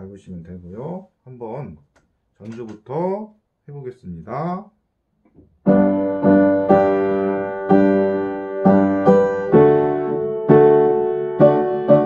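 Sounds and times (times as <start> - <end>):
piano playing hymn chords: 5.7 - 12.0.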